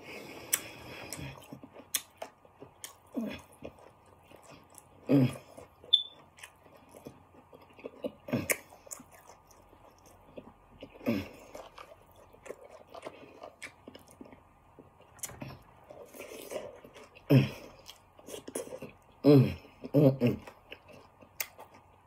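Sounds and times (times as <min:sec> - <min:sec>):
person chewing food: 0:00.0 - 0:22.0.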